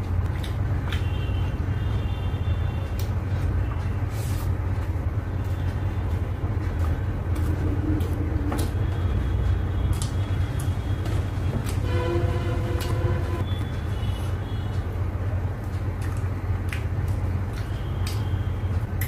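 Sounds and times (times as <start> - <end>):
steady low rumble: 2.5 - 17.6.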